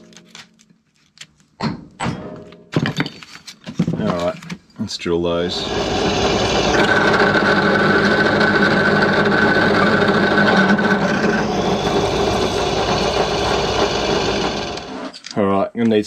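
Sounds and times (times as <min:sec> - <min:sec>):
drill press cutting steel: 0:05.4 - 0:15.2.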